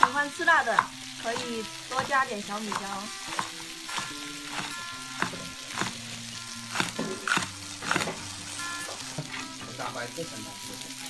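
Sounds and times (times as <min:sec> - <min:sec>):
cleaver chopping on wooden board: 0:00.0 - 0:06.1, 0:06.7 - 0:08.3
faint background music: 0:00.0 - 0:11.0.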